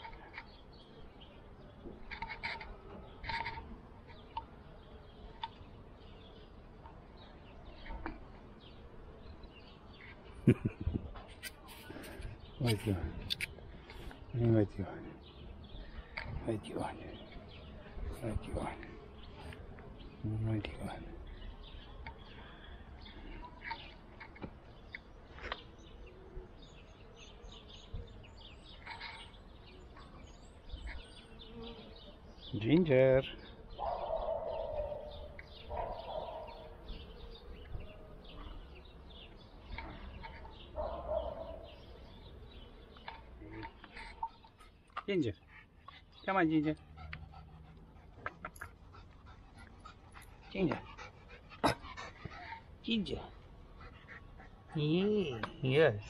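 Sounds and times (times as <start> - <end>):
small birds chirping: 0.0 - 56.0
faint bird chirps: 33.8 - 46.3.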